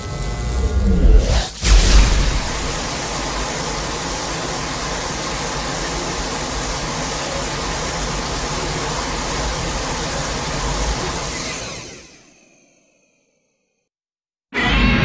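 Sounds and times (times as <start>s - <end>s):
rumbling hissing noise: 0.0s - 11.3s.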